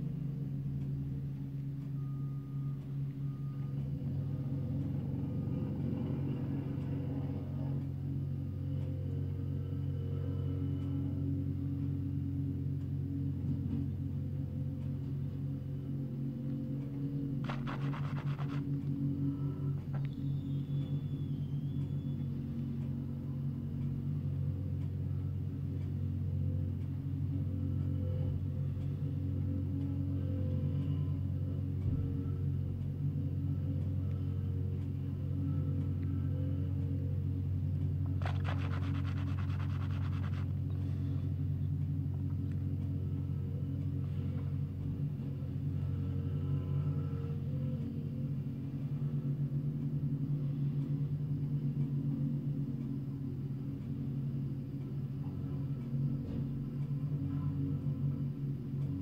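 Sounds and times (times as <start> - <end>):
diesel engines droning: 0.0 - 59.0
fast rattle: 17.4 - 18.8, 38.0 - 40.6.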